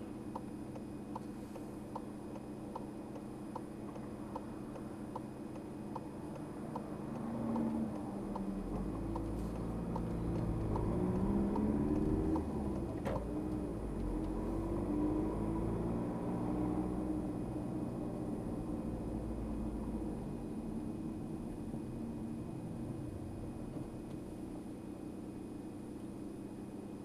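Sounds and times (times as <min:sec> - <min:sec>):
turn signal ticking: 0:00.2 - 0:14.5
car engine accelerating: 0:06.3 - 0:24.6.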